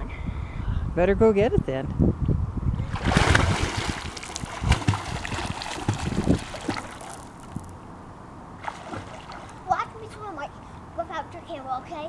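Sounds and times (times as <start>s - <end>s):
water splashing: 2.8s - 7.8s, 8.6s - 10.1s.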